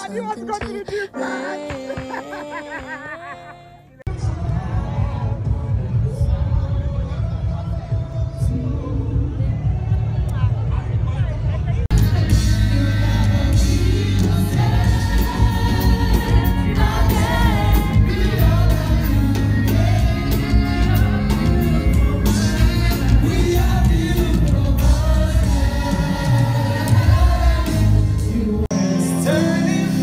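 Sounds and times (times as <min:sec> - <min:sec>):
gospel singing: 0:00.0 - 0:10.3, 0:11.9 - 0:30.0
band with heavy bass and drums: 0:04.1 - 0:30.0.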